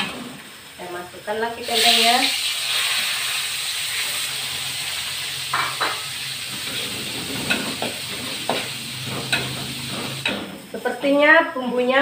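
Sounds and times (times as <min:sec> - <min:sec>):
paste sizzling in hot oil: 0:00.0 - 0:11.0
metal spatula scraping and knocking: 0:05.6 - 0:10.6.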